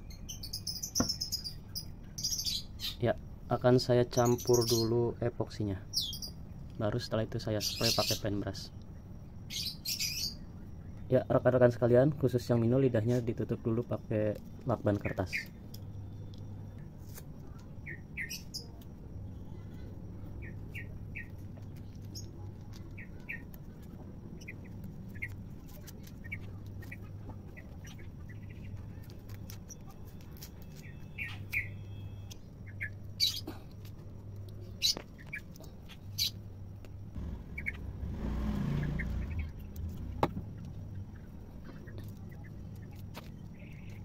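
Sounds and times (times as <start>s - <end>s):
small birds chirping: 0.0s - 44.0s
steady low hum: 0.0s - 44.0s
low rumble: 37.1s - 41.6s.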